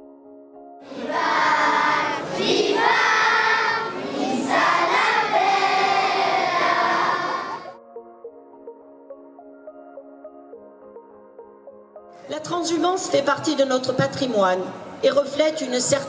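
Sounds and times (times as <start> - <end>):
children's choir singing: 0.8 - 7.8.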